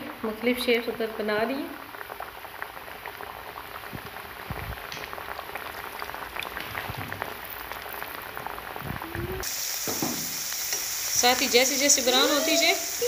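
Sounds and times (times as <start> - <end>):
oil sizzling and popping: 0.0 - 13.0.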